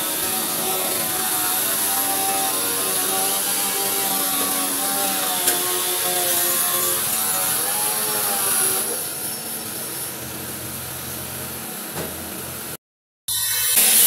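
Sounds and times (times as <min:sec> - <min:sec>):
power tool motor running: 0:00.0 - 0:11.2.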